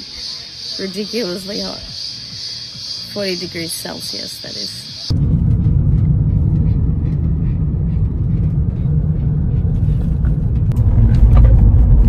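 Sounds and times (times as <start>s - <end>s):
car cabin road and engine rumble: 4.8s - 12.0s.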